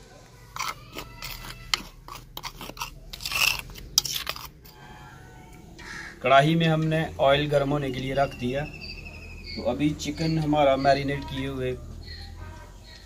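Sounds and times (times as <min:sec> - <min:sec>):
spoon scraping clay bowl: 0:00.5 - 0:06.0
fingers working through powder: 0:00.6 - 0:05.2.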